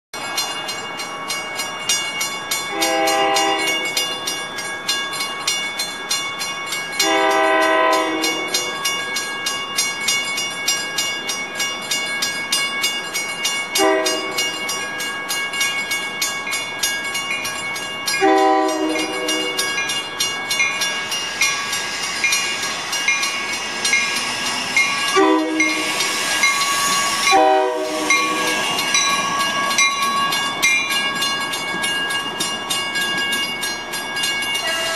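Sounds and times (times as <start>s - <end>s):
railroad crossing bell ringing: 0.2s - 34.9s
train rumble: 0.2s - 34.9s
train horn blasts: 2.7s - 3.8s, 7.0s - 8.7s, 13.8s - 14.4s, 18.2s - 19.6s, 25.2s - 25.9s, 27.3s - 28.5s.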